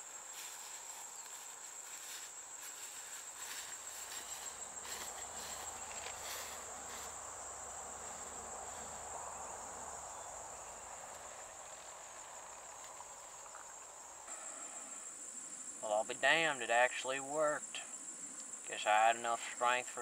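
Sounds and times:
insects droning: 0.0s - 20.0s
soft rustling hiss: 0.0s - 20.0s.

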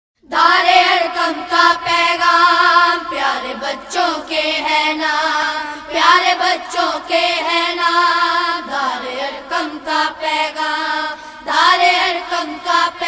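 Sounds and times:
high voice singing: 0.2s - 13.0s.

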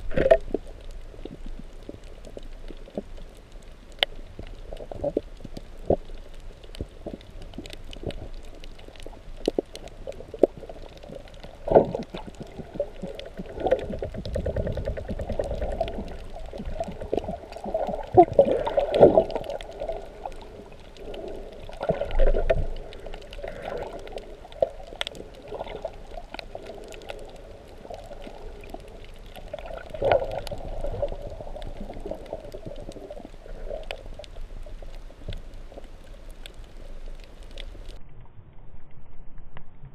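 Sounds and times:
faint clicks: 0.1s - 38.3s.

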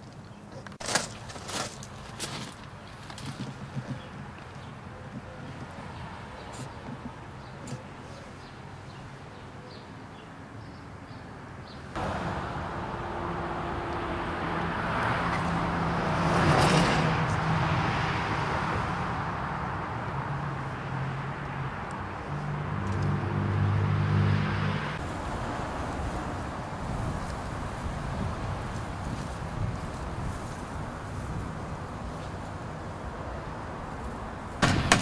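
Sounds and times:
car passing on road: 11.9s - 35.0s
low engine drone: 12.0s - 16.2s.

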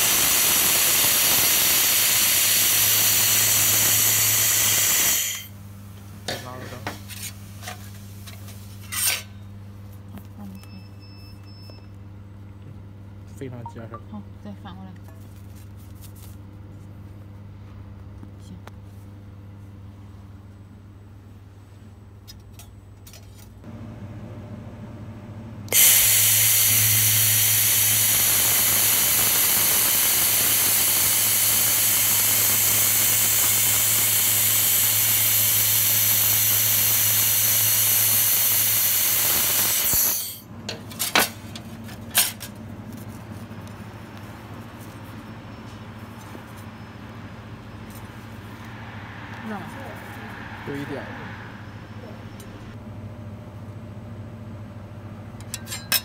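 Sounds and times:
laser welder hissing: 0.0s - 5.5s, 25.7s - 40.4s
low steady hum: 5.4s - 25.7s.

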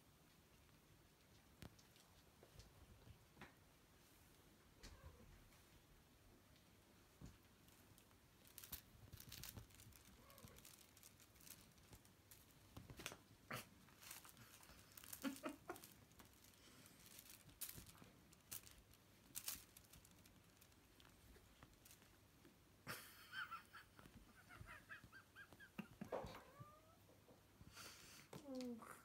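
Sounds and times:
kittens' paws scratching on blanket: 6.5s - 22.6s.

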